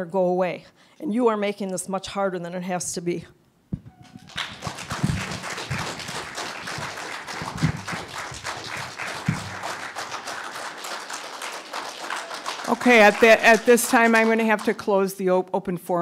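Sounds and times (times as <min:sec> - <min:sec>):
audience applauding: 0:04.0 - 0:14.9.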